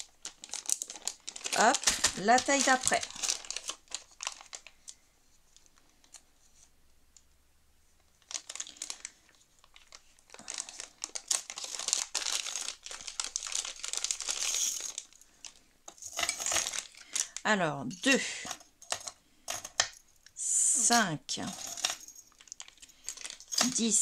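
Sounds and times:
plastic bag crinkling: 0.0s - 5.0s, 8.1s - 17.5s, 21.4s - 24.0s.

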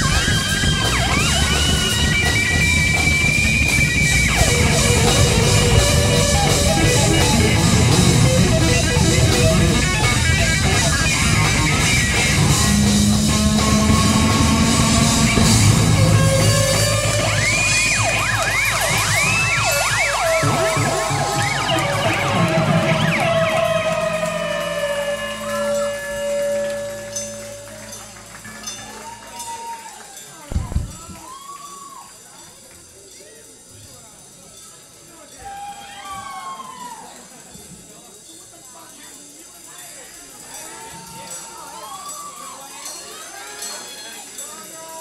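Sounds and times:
live rock band: 0.0s - 29.4s
guitar high notes swooping: 0.0s - 29.5s.

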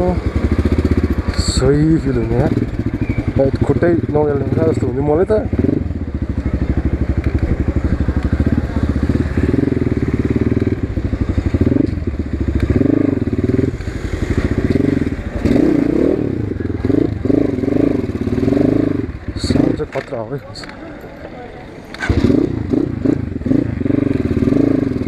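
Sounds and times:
dirt bike engine revving: 0.0s - 20.0s, 21.9s - 25.0s.

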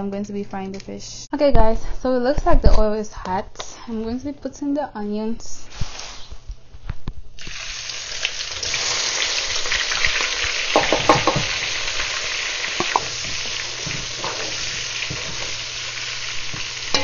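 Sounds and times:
onions sizzling in oil: 7.4s - 17.0s
spatula knocking on pot: 10.7s - 11.6s.

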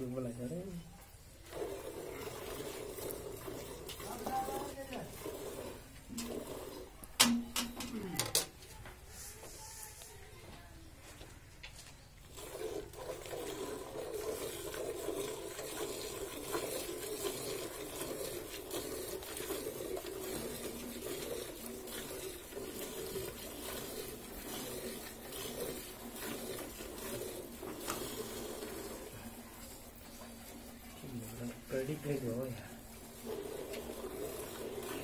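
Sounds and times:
milk squirting into steel bucket: 1.3s - 7.8s, 12.2s - 35.0s.

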